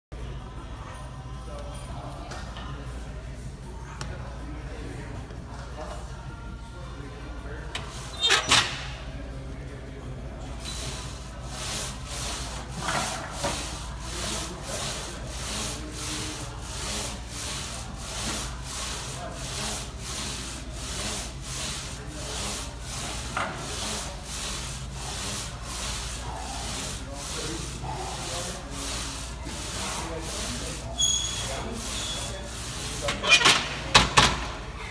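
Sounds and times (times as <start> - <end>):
leg press rasping strokes: 10.6 - 33.8.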